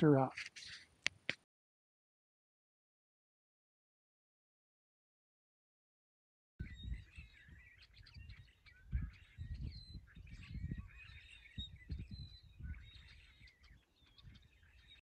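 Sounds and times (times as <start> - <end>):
small birds chirping: 0.0 - 1.4, 6.6 - 15.0.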